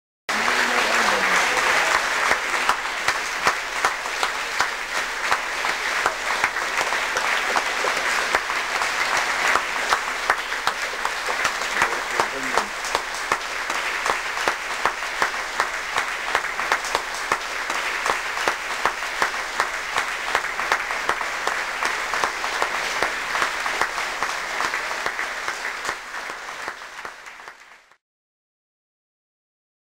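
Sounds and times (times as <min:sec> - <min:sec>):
audience clapping in rhythm: 0:00.3 - 0:28.0.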